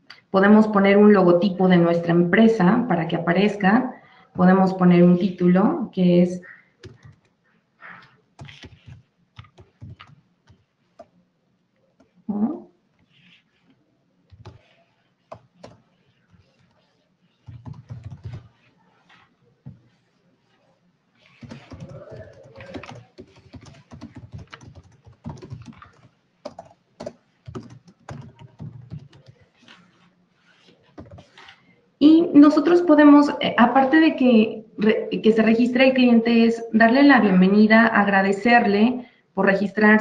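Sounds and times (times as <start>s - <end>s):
typing on keyboard: 6.8s - 7.3s, 8.4s - 11.2s, 14.3s - 18.6s, 21.3s - 29.8s, 30.9s - 31.4s.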